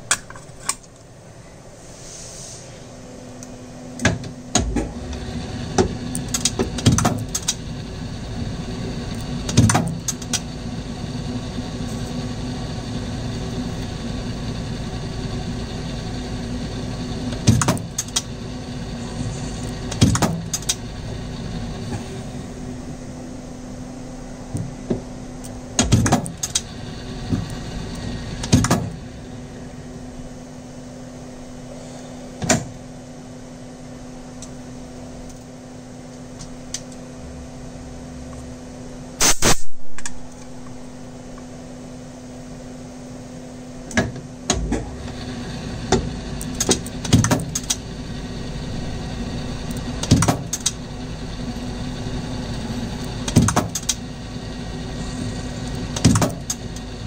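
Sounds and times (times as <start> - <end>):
metal lathe running: 4.9 - 22.9, 26.3 - 30.4, 44.9 - 57.0.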